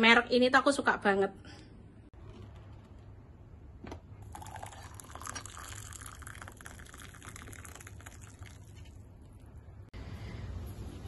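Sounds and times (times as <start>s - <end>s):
water pouring into mug: 4.2s - 9.0s.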